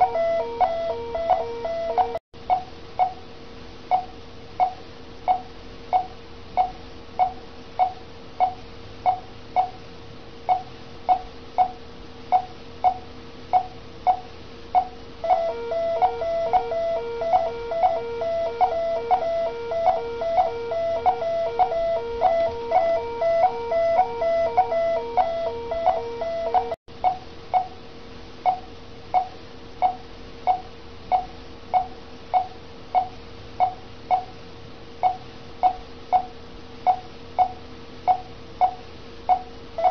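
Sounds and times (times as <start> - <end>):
patient monitor beeping: 0.0 - 2.2, 14.8 - 27.2
rapidly pulsing alarm tone: 0.0 - 2.2, 14.8 - 26.8
faint steady hum: 0.0 - 39.9.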